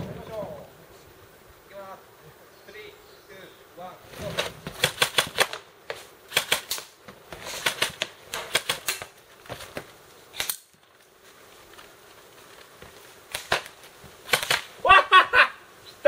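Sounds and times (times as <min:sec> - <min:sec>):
airsoft guns firing: 0:04.4 - 0:09.7, 0:13.3 - 0:14.8.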